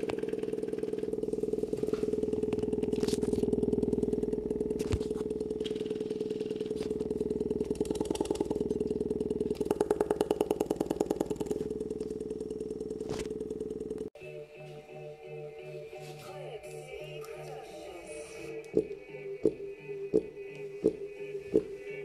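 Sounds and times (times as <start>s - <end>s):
fast pulsing beat: 0.0s - 14.1s
buzzy bass tone from speaker: 0.0s - 22.0s.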